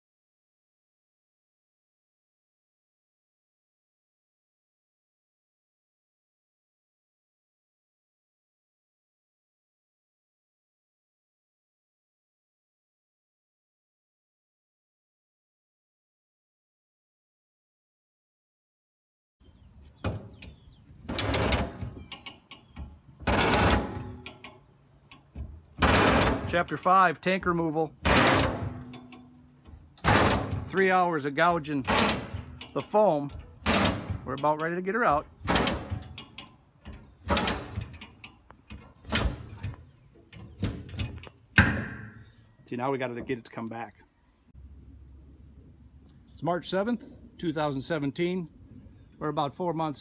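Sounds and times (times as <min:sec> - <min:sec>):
sharp clicks and knocks: 0:19.8 - 0:26.8, 0:28.0 - 0:31.0, 0:31.6 - 0:42.2
metal scraping and grating: 0:20.1 - 0:26.9, 0:28.0 - 0:41.5.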